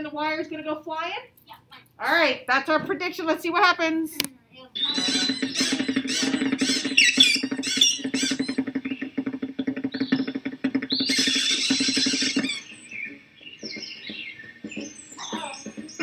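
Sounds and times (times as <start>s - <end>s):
cartoon birds chattering: 4.6s - 16.0s.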